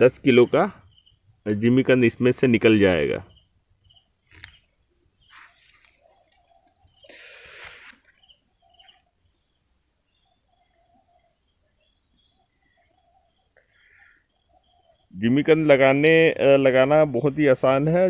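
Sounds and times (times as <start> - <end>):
insects trilling: 0.0 - 18.0
bird chirps and calls: 3.2 - 16.2
brief rustling: 5.3 - 6.8.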